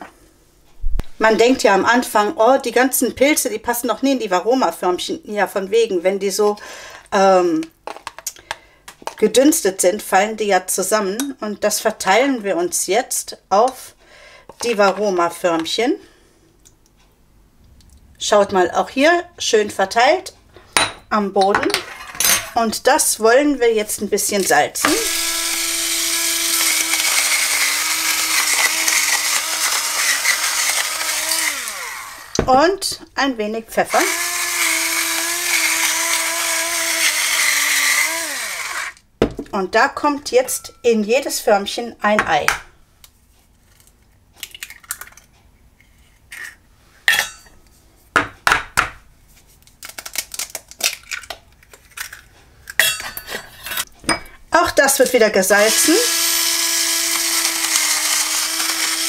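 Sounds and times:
electric salt mill grinding: 0:24.4 - 0:32.4, 0:33.9 - 0:39.0, 0:55.6 - 0:59.0
eggshells cracking: 0:49.7 - 0:52.3.

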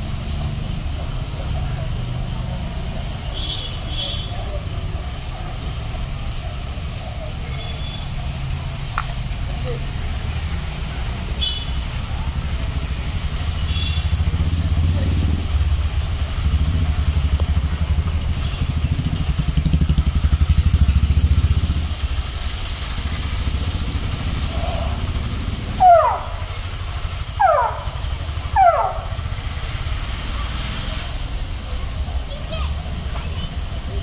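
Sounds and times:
sharp falling squeals: 0:27.1 - 0:27.5.

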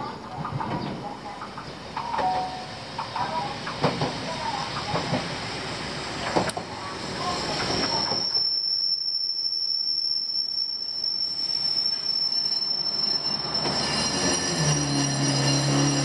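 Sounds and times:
railcar engine low hum: 0:00.0 - 0:08.3
train brakes squealing: 0:06.8 - 0:16.0.

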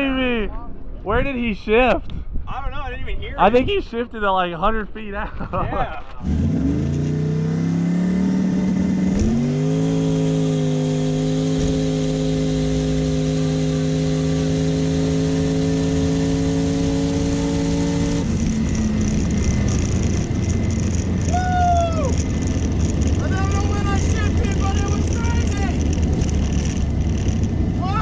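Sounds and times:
drag car engine at full throttle: 0:06.2 - 0:28.0.

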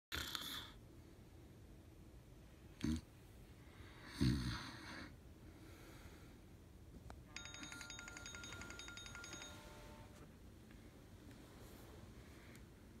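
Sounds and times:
person snoring: 0:04.0 - 0:05.1
smartphone alarm chime: 0:07.3 - 0:10.2.

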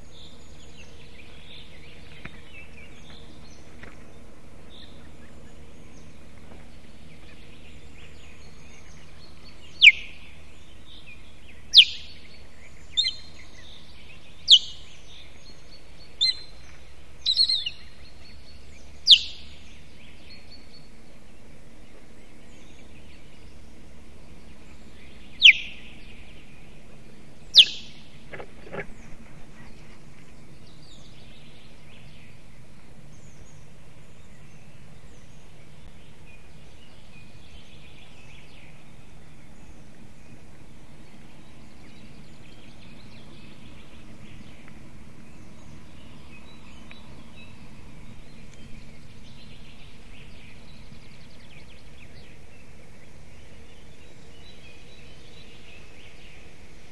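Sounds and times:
osprey warning calls: 0:04.7 - 0:20.9, 0:22.8 - 0:31.8.

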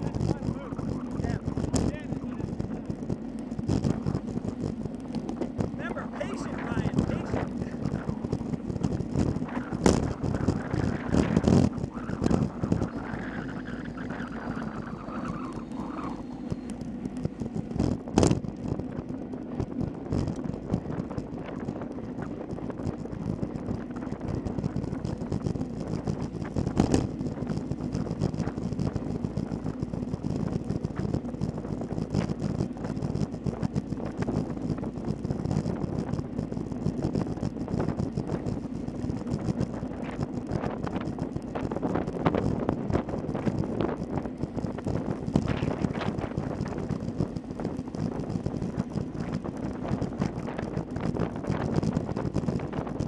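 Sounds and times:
bicycle road rattle: 0:00.0 - 0:53.0
wind rushing over microphone: 0:00.0 - 0:53.0.

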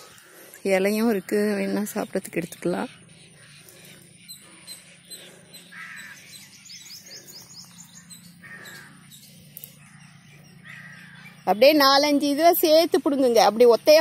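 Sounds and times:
harsh bird calls: 0:00.0 - 0:14.0
high bird chirps: 0:01.2 - 0:12.2.

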